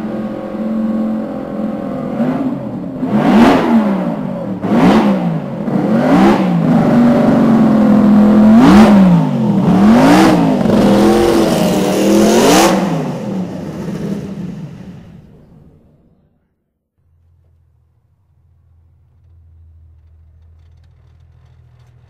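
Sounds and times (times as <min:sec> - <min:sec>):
racing engine revving: 0:00.0 - 0:15.8.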